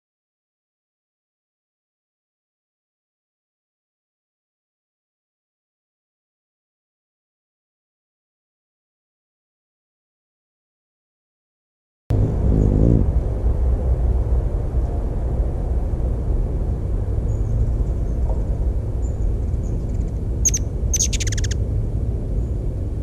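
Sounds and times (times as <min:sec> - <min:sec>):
steady low rumble: 0:12.1 - 0:23.0
hummingbird wings humming: 0:12.2 - 0:13.2, 0:17.2 - 0:22.6
hummingbird chip calls: 0:19.0 - 0:21.6.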